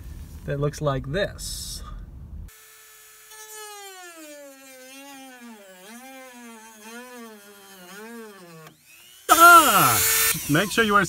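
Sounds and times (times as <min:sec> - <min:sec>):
rotary tool cutting plastic: 0:02.5 - 0:11.0.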